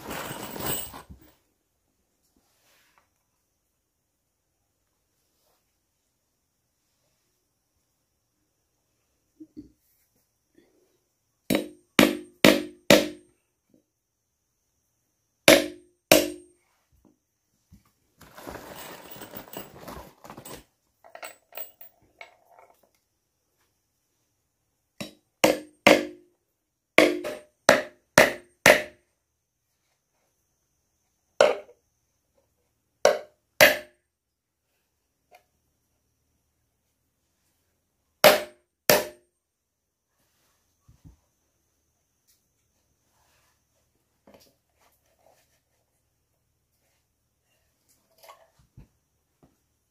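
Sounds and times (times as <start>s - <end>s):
short rustle: 18.2s - 20.6s.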